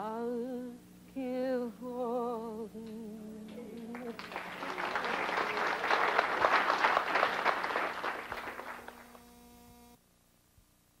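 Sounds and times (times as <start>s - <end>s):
faint steady hum: 0.0s - 11.0s
audience applauding: 3.8s - 9.2s.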